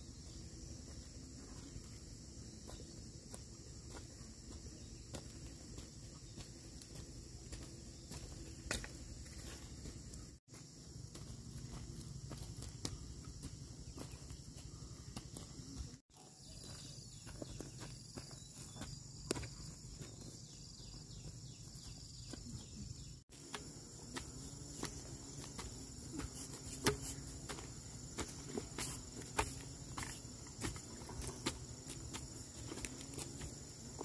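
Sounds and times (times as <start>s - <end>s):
footsteps on charred ground: 0.0s - 34.0s
insects chirring: 0.0s - 34.0s
stick knocking into dry soil: 23.4s - 32.9s.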